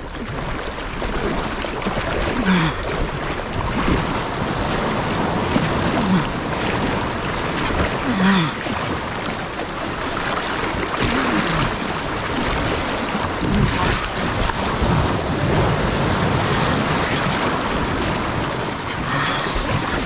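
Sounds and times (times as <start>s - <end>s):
wind and water rushing: 0.0s - 20.0s
person humming: 8.1s - 8.6s.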